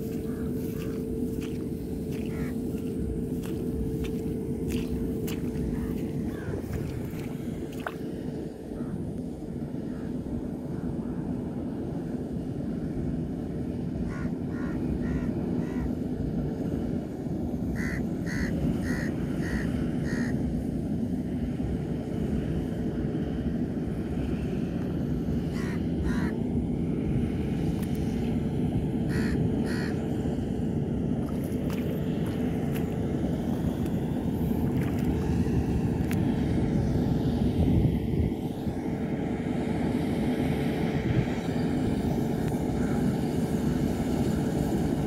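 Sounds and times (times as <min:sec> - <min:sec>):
combine harvester engine droning: 0:00.0 - 0:45.0
bird making harsh calls: 0:02.2 - 0:02.6.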